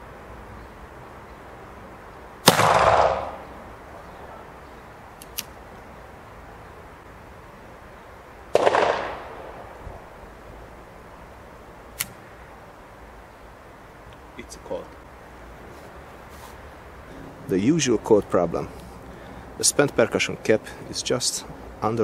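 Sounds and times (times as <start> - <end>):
revolver shots with echo: 2.4 - 3.5, 8.6 - 9.6.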